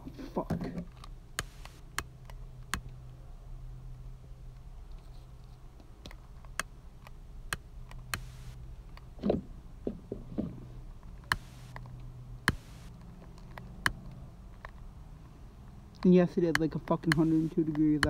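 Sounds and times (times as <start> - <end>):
handling sounds: 0.0 - 1.9, 7.8 - 18.0.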